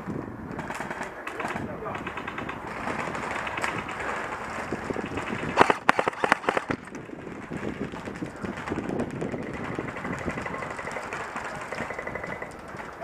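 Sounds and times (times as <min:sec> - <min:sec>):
airsoft rifle shots: 0:04.9 - 0:06.9, 0:09.3 - 0:12.5.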